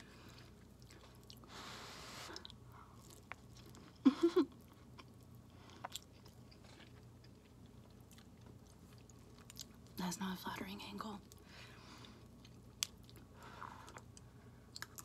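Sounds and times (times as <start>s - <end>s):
soft chewing with mouth clicks: 0.0s - 1.6s, 2.2s - 10.0s, 11.2s - 15.0s.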